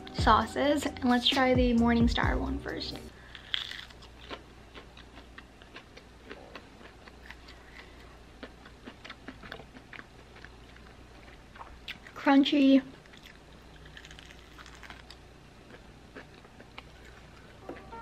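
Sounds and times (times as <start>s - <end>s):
crunchy chewing: 3.2s - 12.2s, 12.8s - 18.0s.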